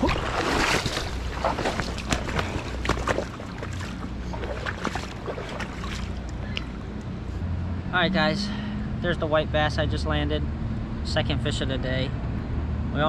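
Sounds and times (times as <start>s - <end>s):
splashing rush: 0.0s - 6.6s.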